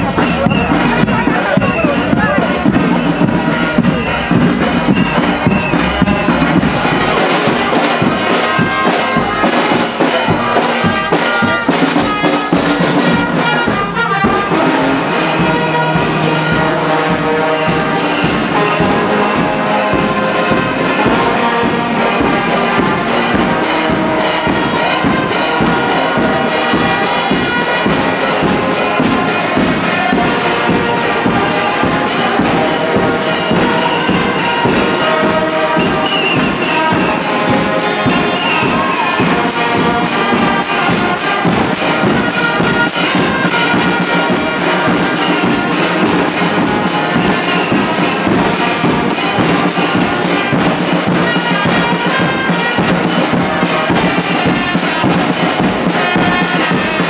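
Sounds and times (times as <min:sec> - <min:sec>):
military brass band playing: 0:00.0 - 0:57.0.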